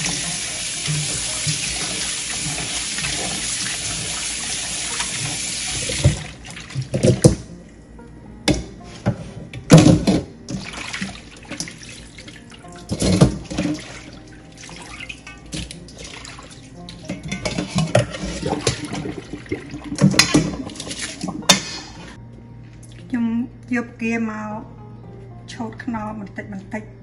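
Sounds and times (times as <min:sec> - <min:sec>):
water splashing in a bowl: 0:10.5 - 0:16.7, 0:17.5 - 0:22.2.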